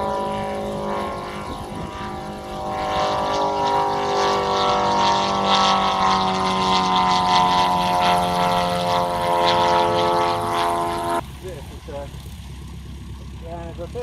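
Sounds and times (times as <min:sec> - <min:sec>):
light aircraft engine and propeller: 0:00.0 - 0:14.0.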